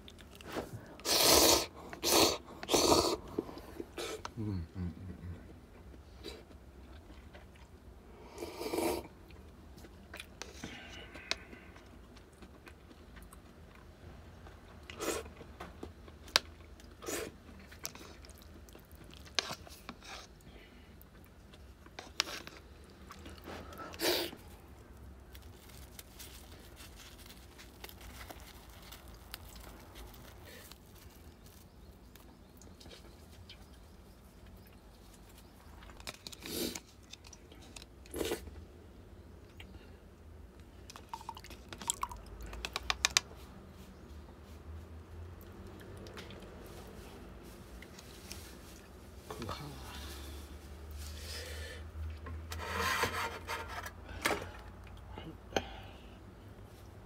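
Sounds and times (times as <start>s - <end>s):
person chewing: 0.0s - 4.4s, 14.7s - 20.4s, 40.9s - 42.9s.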